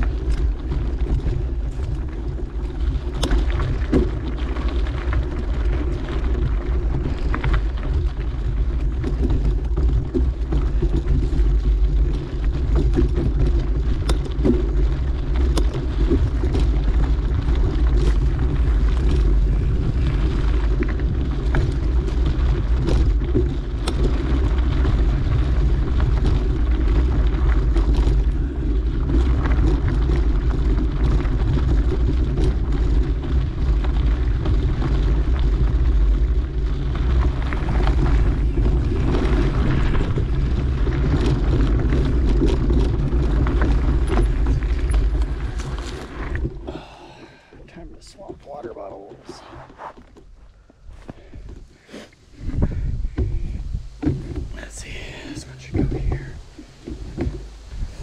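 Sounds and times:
bike clicks and rattles: 0.0s - 47.6s, 49.5s - 54.6s, 55.8s - 58.0s
wind buffeting microphone: 0.0s - 48.3s, 50.6s - 58.0s
tyres rumbling on dirt: 0.0s - 58.0s.

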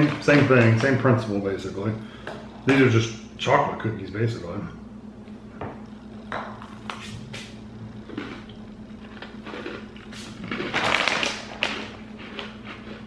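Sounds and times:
crunching biscuits being chewed: 6.6s - 13.0s
plastic snack bag crinkling: 8.1s - 13.0s.

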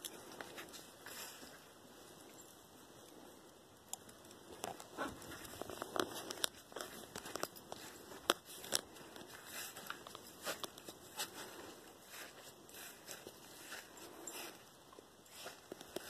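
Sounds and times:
footsteps on gravelly dirt: 4.9s - 14.6s.

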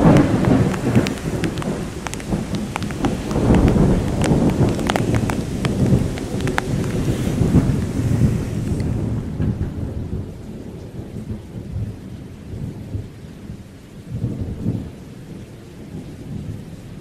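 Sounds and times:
heavy rain hiss: 0.0s - 13.1s
thunder rumbling: 0.0s - 17.0s.

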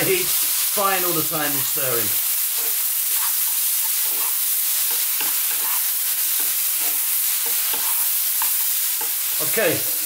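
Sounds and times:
food sizzling in a frying pan: 0.0s - 10.0s
wooden spatula scraping a pan: 2.5s - 10.0s.

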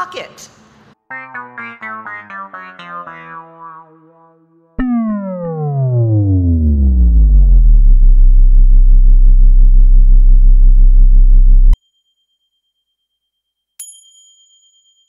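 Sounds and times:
deep synthesizer drone: 1.3s - 11.8s
high ding: 13.8s - 15.0s.

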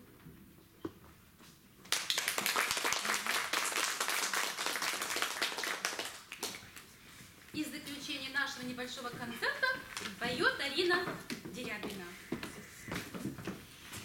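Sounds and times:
audience applauding: 1.9s - 6.8s.

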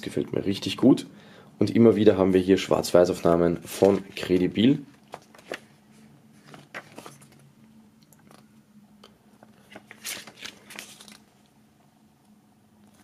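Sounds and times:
paper pages rustling and flicking: 3.2s - 7.5s, 9.5s - 11.5s.

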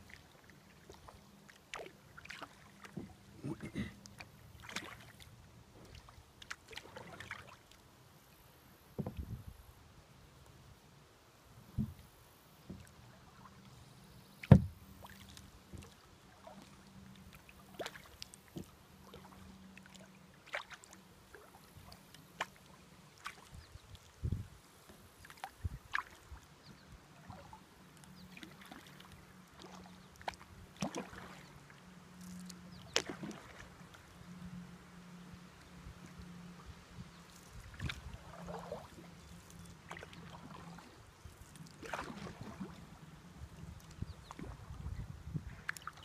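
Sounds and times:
paddle knocking on kayak hull: 9.0s - 9.4s, 11.7s - 12.0s, 14.4s - 14.8s.

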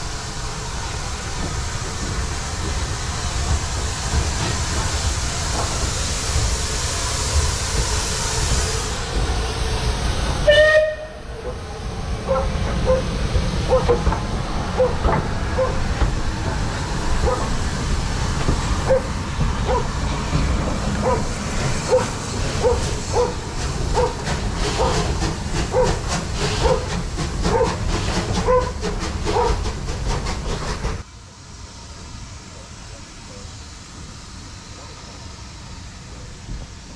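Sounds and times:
steam hissing: 0.0s - 36.9s
steam locomotive whistle: 10.4s - 11.3s.

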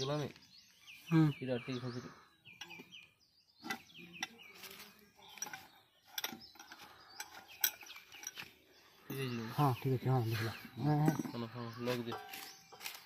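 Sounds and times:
birds chirping: 0.0s - 13.0s
metal clicks and knocks: 5.4s - 8.5s.

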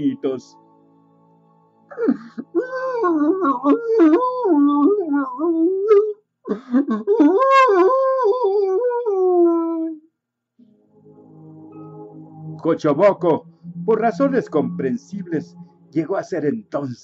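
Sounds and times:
person imitating dog howling: 2.5s - 6.2s, 7.1s - 10.0s.

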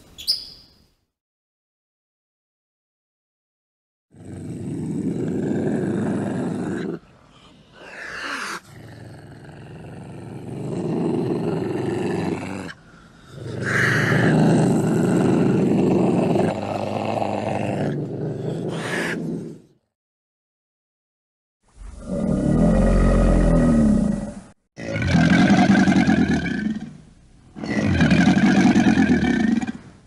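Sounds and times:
ocelot calling: 0.1s - 0.8s.

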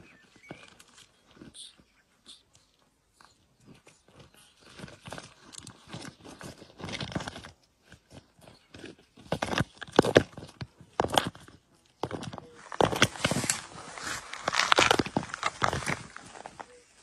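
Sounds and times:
tortoise shells scraping on gravel: 3.6s - 17.0s.

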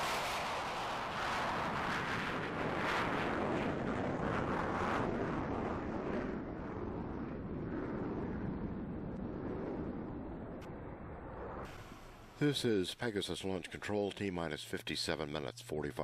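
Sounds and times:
jet engine roar: 0.0s - 12.6s.

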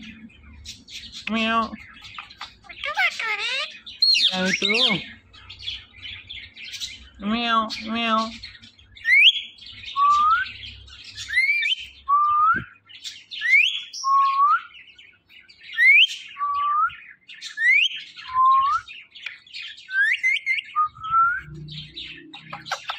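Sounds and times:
scratchy chirping: 1.8s - 4.9s, 21.4s - 22.9s
parrots whistling: 1.9s - 5.0s.

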